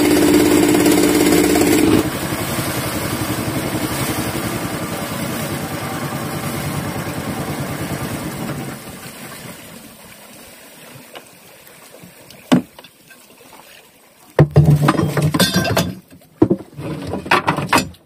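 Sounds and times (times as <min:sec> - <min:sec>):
boat engine: 0:00.0 - 0:12.8
rough noise and knocks on board: 0:12.5 - 0:12.8, 0:14.4 - 0:18.0.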